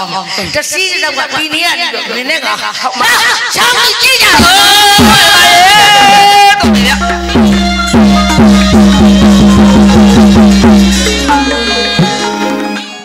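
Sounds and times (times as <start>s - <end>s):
tuned drum strokes: 6.6s - 12.6s.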